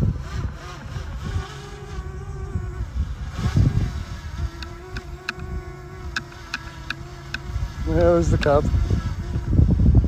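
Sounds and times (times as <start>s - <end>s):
drone propellers buzzing: 0.0s - 10.0s
wind rumble on microphone: 0.0s - 10.0s.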